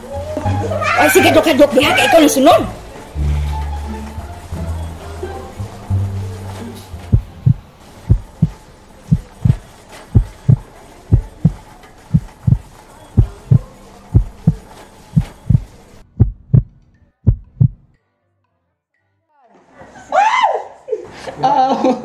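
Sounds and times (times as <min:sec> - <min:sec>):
heartbeat thumps: 0:07.0 - 0:14.6, 0:15.2 - 0:17.9.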